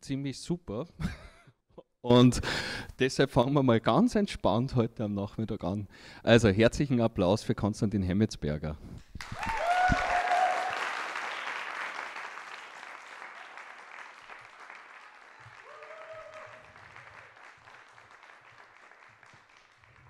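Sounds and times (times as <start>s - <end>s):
short cheer: 9.2s - 11.6s, 15.0s - 17.4s
audience applauding: 9.2s - 20.0s.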